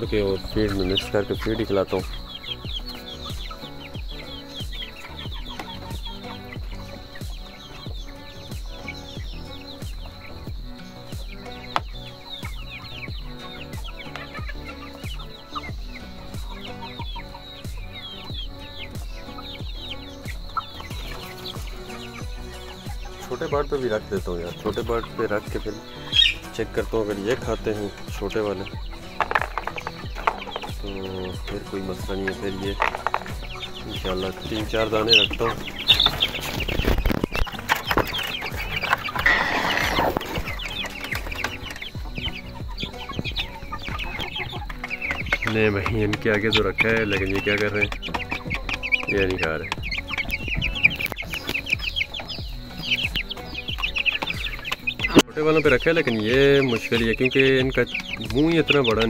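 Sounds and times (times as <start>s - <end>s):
chickens clucking: 0.0s - 59.0s
music with deep beat: 0.0s - 59.0s
rustling scuffle: 26.1s - 59.0s.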